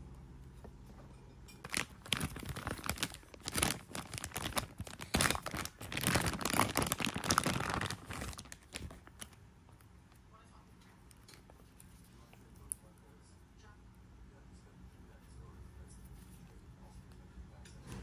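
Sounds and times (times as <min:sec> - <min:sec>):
plastic bag crinkling: 0:01.6 - 0:09.4.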